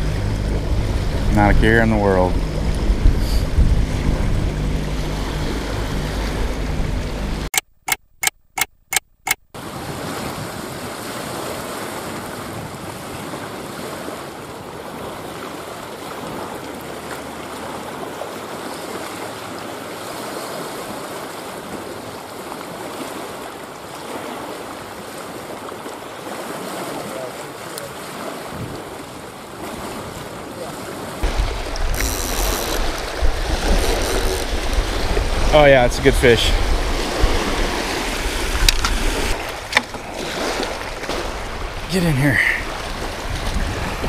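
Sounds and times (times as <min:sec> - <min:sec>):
wind buffeting microphone: 0:00.0 - 0:07.5, 0:28.4 - 0:29.1, 0:31.2 - 0:41.9, 0:42.6 - 0:44.0
waves washing on rocky shore: 0:09.6 - 0:44.0.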